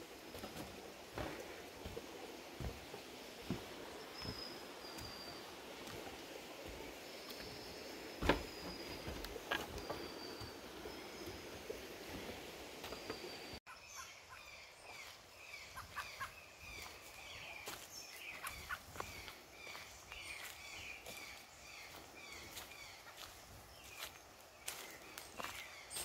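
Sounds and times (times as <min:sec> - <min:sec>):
footsteps on leafy dirt trail: 0:00.0 - 0:11.3, 0:14.9 - 0:26.0
birds chirping: 0:00.0 - 0:26.0.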